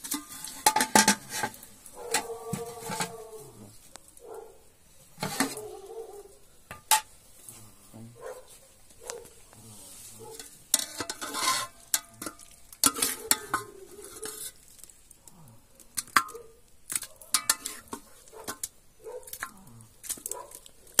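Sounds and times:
metal ladle scraping pot: 0:00.0 - 0:04.0, 0:05.0 - 0:05.8, 0:09.8 - 0:15.0, 0:15.9 - 0:21.0
hot pot hissing: 0:00.0 - 0:07.5, 0:08.8 - 0:21.0.

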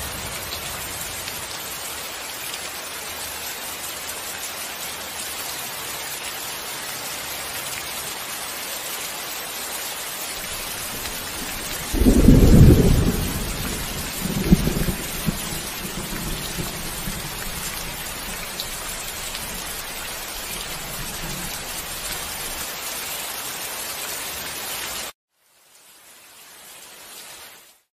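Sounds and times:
heavy rain: 0:00.0 - 0:27.9
thunder rumbling: 0:10.4 - 0:22.6.

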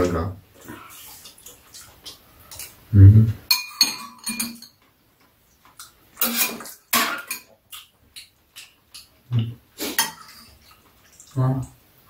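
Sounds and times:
eating sounds: 0:00.5 - 0:03.4, 0:05.2 - 0:11.8
utensils clinking against bowls: 0:03.5 - 0:04.8, 0:06.2 - 0:07.5.

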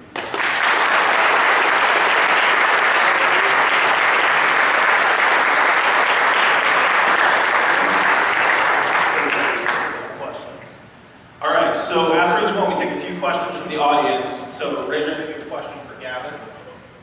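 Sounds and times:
audience applauding: 0:00.0 - 0:10.0.

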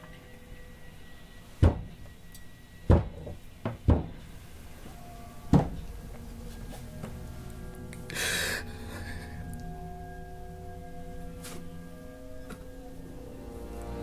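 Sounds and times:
loud dull knocks: 0:01.6 - 0:02.0, 0:02.9 - 0:04.2, 0:05.5 - 0:05.8.

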